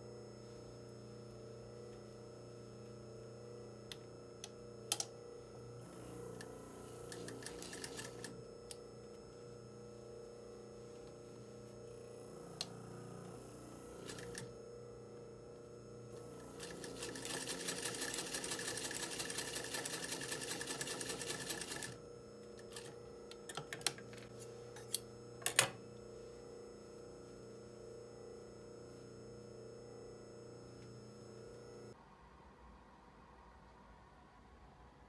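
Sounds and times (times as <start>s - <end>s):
sewing machine stitching: 5.8s - 8.4s, 12.5s - 14.6s, 16.1s - 22.0s.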